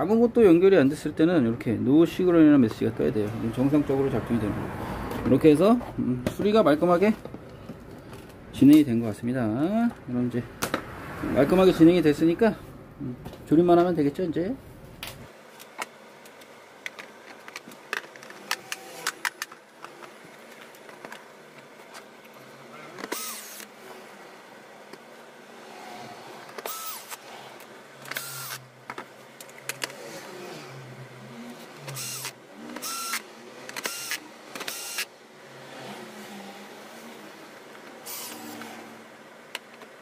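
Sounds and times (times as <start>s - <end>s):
electric screwdriver whirring: 18.3s - 19.5s, 23.0s - 23.7s, 26.5s - 28.7s, 31.8s - 35.1s, 37.9s - 39.0s.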